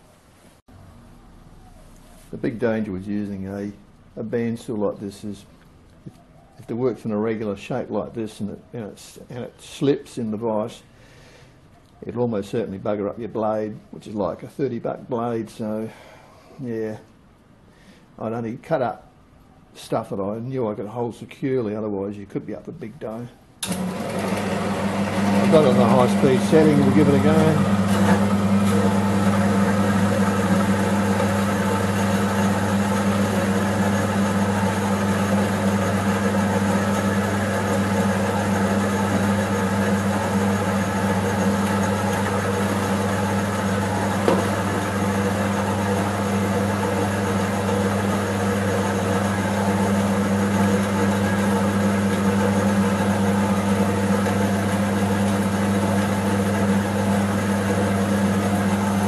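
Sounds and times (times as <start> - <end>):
bandsaw motor hum: 23.6 - 59.0.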